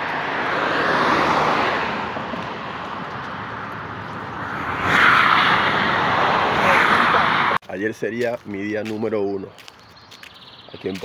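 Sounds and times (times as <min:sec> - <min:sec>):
cars passing: 0:00.0 - 0:07.6.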